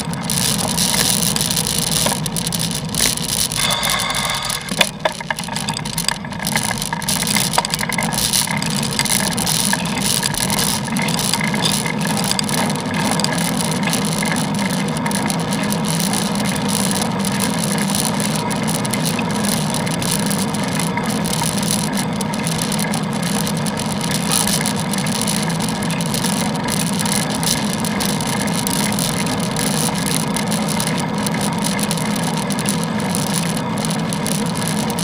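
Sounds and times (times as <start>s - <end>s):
bicycle rattles and knocks: 0.0s - 35.0s
wind and road noise: 0.0s - 35.0s
short high-pitched tone: 3.6s - 4.8s.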